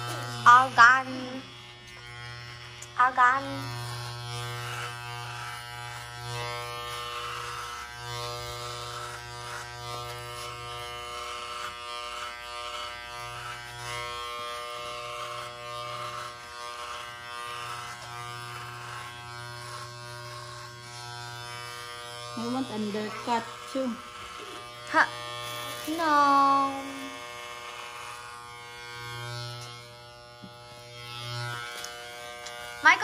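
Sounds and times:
electric shaver buzzing: 0:00.0 - 0:33.0.

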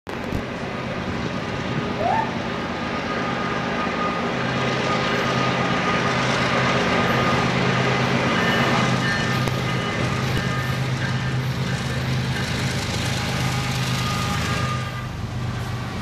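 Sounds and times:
locomotive engine drone: 0:00.1 - 0:16.0.

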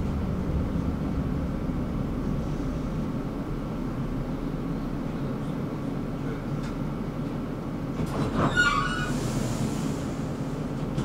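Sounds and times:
tram rumbling on rails: 0:00.0 - 0:11.0
high-pitched rail squeal: 0:08.2 - 0:09.8.

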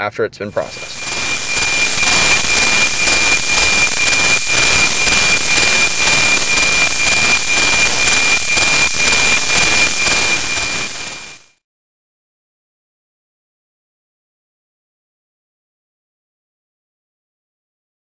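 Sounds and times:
radio static hiss: 0:00.5 - 0:11.6
steady high tone: 0:00.5 - 0:11.6.

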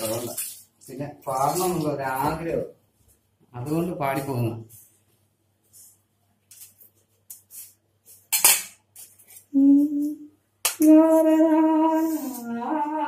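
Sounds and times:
man humming: 0:09.5 - 0:10.3.

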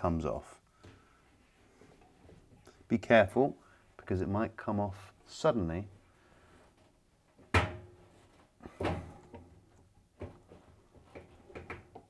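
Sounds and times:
knocks and clunks on dryer parts: 0:08.7 - 0:09.6.

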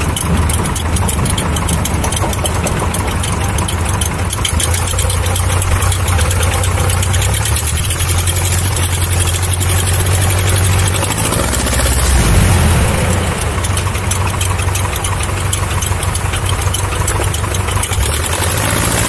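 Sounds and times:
propeller plane engine drone: 0:00.0 - 0:19.0.

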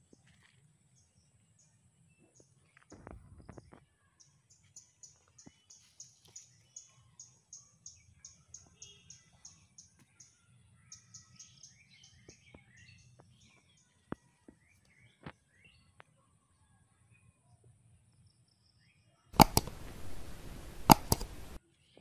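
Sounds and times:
other birds calling: 0:19.4 - 0:21.6
sharp clicks: 0:19.4 - 0:21.6.

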